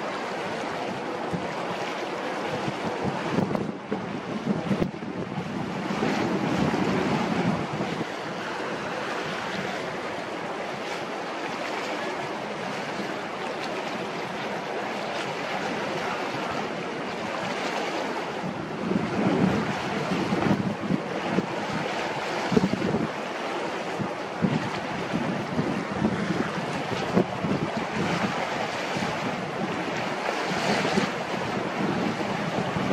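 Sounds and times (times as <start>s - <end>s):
harbour water: 0.0s - 32.9s
wind buffeting microphone: 0.6s - 32.9s.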